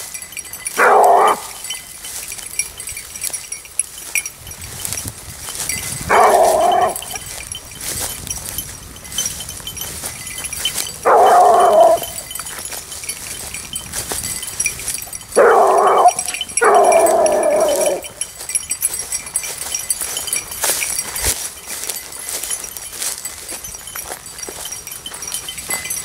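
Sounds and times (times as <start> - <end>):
hounds baying: 0.4 - 2.8, 5.6 - 7.8, 10.4 - 21.2.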